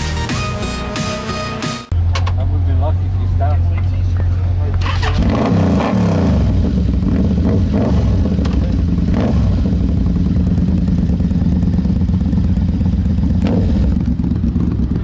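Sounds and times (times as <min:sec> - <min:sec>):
motorcycle engine idling: 0:06.5 - 0:15.0.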